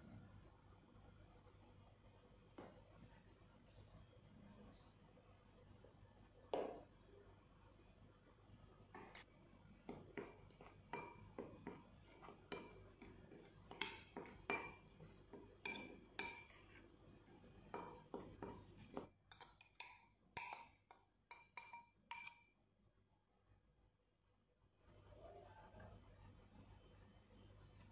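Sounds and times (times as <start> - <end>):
spoon scraping flour: 9.8 - 20.8
spoon clinking against glass bowl: 12.5 - 16.6, 17.7 - 22.6.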